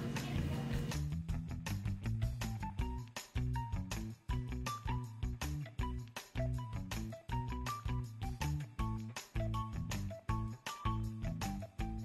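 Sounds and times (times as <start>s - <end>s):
background music with beat: 0.0s - 12.0s.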